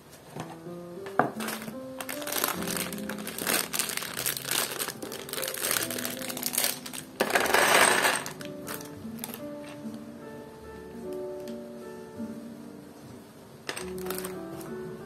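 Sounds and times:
soft background music: 0.0s - 15.0s
plastic bag crinkling: 1.4s - 9.5s, 13.9s - 14.4s.

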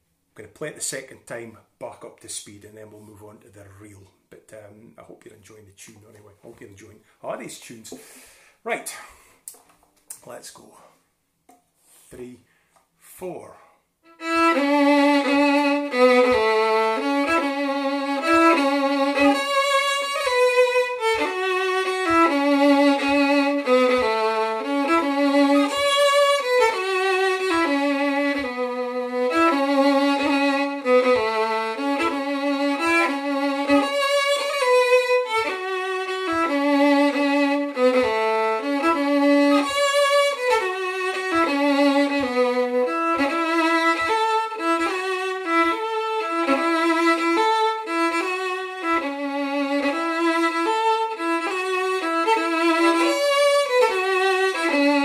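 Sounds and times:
solo fiddle playing: 14.0s - 55.0s.

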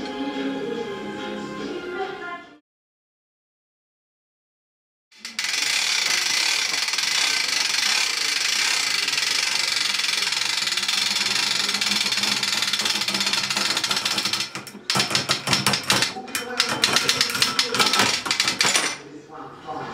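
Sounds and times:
small motor whirring: 5.2s - 14.5s.

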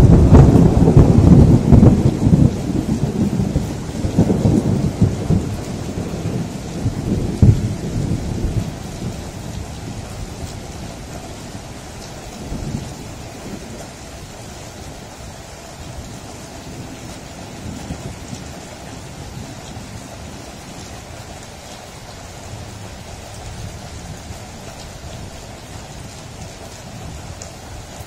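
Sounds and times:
thunder rumbling and cracking: 0.0s - 15.0s, 15.9s - 21.0s
heavy rain: 0.0s - 28.0s.

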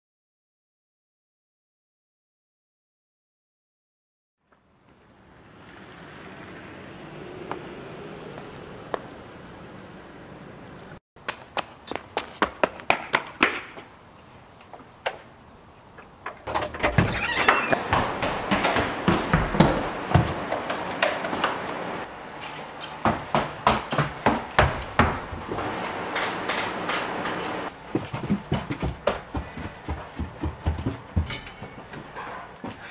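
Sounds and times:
child's running footsteps: 11.2s - 14.0s, 17.0s - 21.6s, 22.3s - 25.7s, 27.7s - 32.9s.

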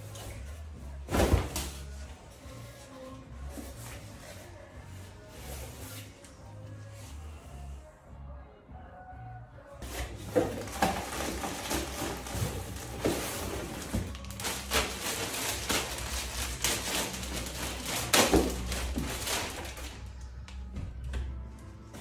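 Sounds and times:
background music: 0.0s - 22.0s
plastic bags crinkling: 10.2s - 20.1s.

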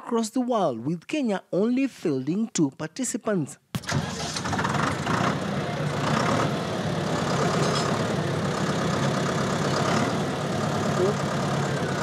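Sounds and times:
tractor engine running: 3.8s - 12.0s.

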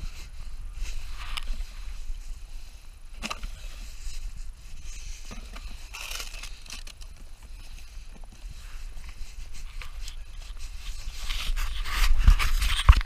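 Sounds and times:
litter and dry grass rustling: 0.0s - 13.0s.

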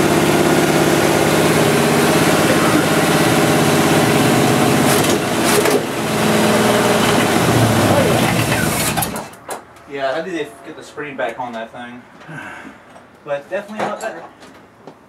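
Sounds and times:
car engine idling: 0.0s - 9.3s.

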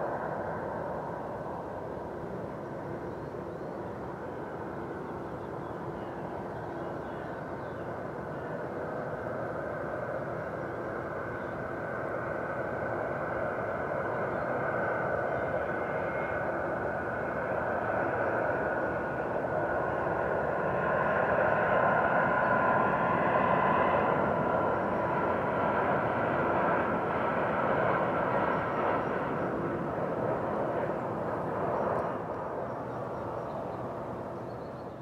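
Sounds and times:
jet engine whine: 0.0s - 35.0s.

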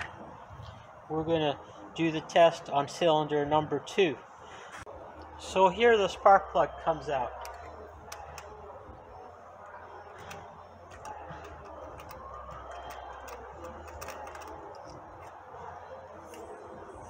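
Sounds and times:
ratchet wrench clicking: 7.4s - 8.6s, 10.2s - 15.4s.

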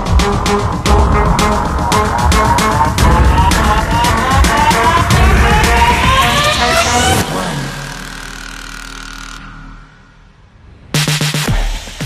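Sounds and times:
deep bass boom falling in pitch: 0.0s - 7.3s.

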